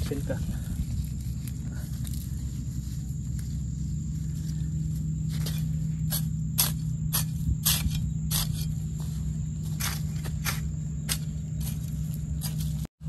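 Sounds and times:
hoe scraping dry soil: 0.0 - 12.9
low hum: 0.0 - 12.9.

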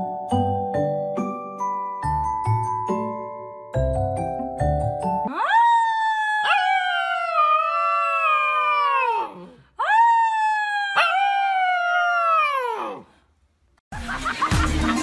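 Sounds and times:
puppy howling: 5.3 - 13.0.

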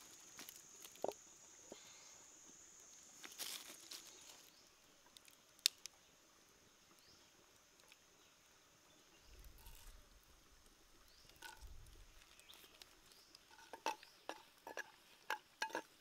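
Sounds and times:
wood fire crackling: 2.7 - 6.1.

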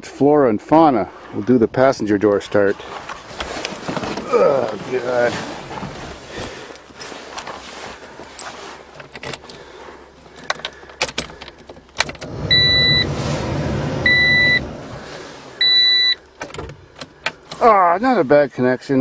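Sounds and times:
keys and ignition clicks: 8.2 - 9.6, 10.2 - 12.3, 16.0 - 17.6
car engine cranking: 8.2 - 17.8
loud electronic beeps: 12.4 - 13.3, 14.0 - 14.7, 15.6 - 16.2.

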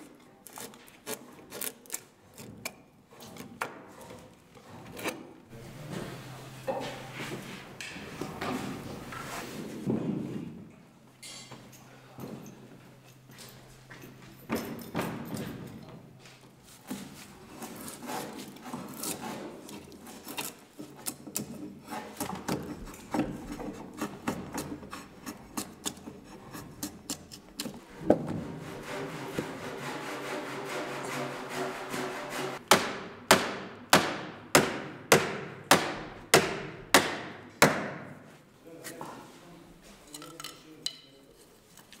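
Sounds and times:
scraping and rubbing on wood: 16.6 - 32.6.

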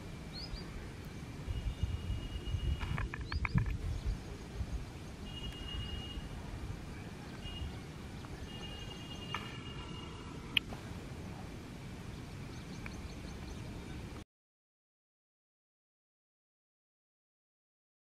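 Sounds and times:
low wind rumble: 0.0 - 14.2
bird chattering clicks: 2.8 - 3.8, 12.7 - 13.2
high whistled bird notes: 5.2 - 6.3.

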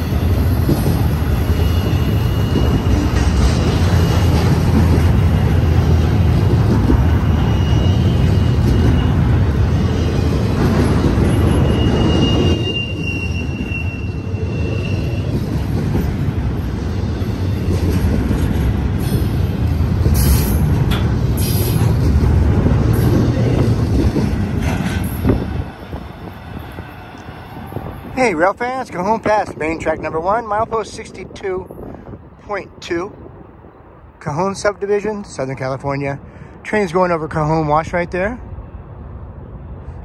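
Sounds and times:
steel wheels rumbling on rail: 0.0 - 32.4
thin wheel squeal: 7.3 - 9.2, 11.5 - 15.3.

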